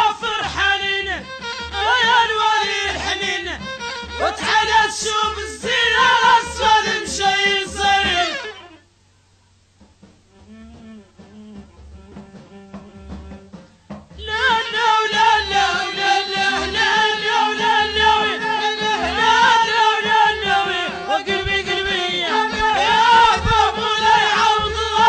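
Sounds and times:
regular bass beat: 20.4 - 25.0.

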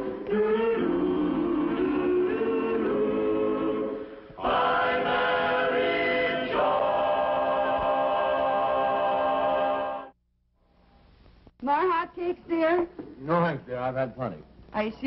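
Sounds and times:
vocal chorus singing: 0.0 - 10.2.

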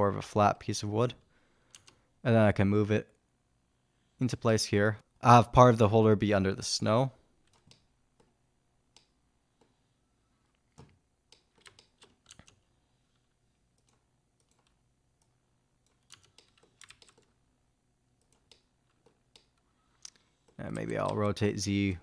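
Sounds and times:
computer keyboard keystrokes: 1.7 - 2.0, 10.8 - 12.6, 15.9 - 17.3.

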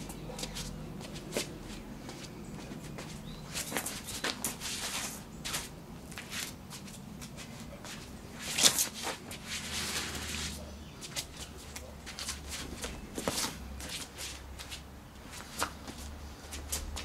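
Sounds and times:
footwork scuffs on stone: 0.0 - 17.0.

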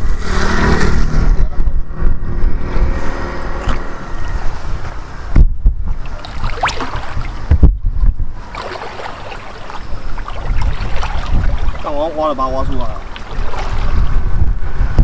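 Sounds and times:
wind buffeting microphone: 0.0 - 15.0
water sloshing around legs: 6.0 - 7.5, 8.4 - 14.2.

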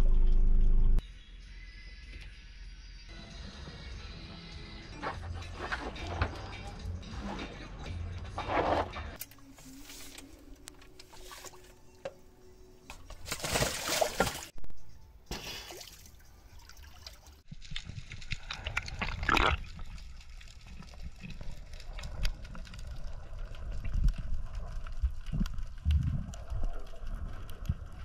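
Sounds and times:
seawater splashing and sloshing: 13.1 - 14.6
muffled underwater rumble: 18.4 - 28.0.

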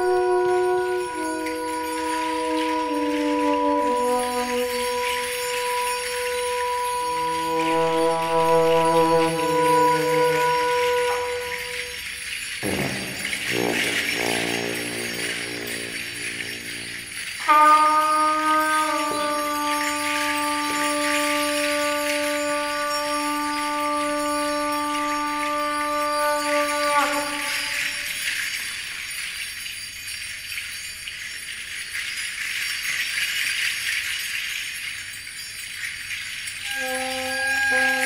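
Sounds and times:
held pitched note: 0.0 - 28.1, 36.7 - 38.0
jingling small percussion: 0.0 - 38.0.

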